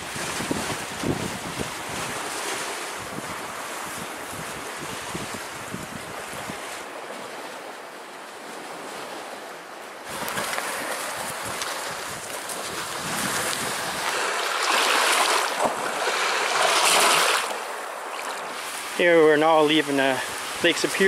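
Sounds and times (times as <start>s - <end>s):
wind on microphone: 0.0s - 7.0s, 10.1s - 17.6s
small waves washing onto stony shore: 0.0s - 21.0s.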